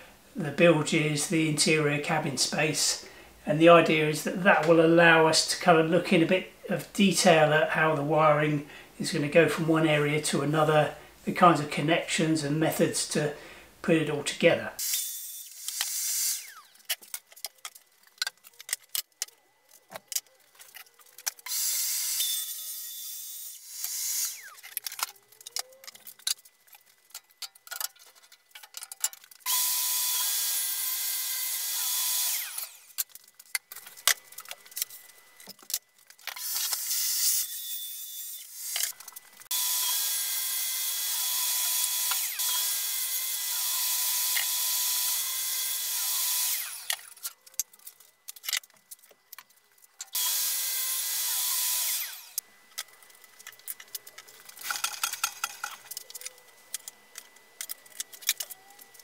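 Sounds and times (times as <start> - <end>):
clicks and knocks of handling: 16.9 - 21.5, 24.6 - 29.5, 52.7 - 59.0
track saw cutting plywood: 29.5 - 33.0, 39.5 - 47.3, 50.1 - 52.4.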